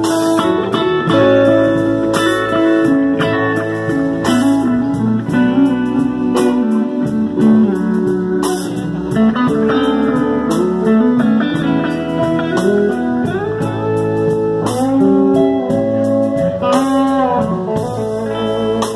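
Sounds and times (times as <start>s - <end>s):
live band with electric guitars: 0.0s - 18.9s.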